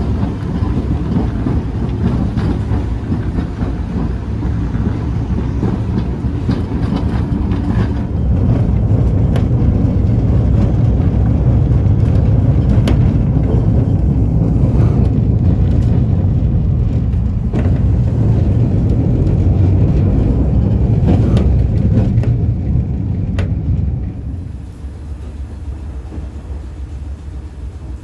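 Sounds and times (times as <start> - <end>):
tram wheels rumbling: 0.0 - 28.0.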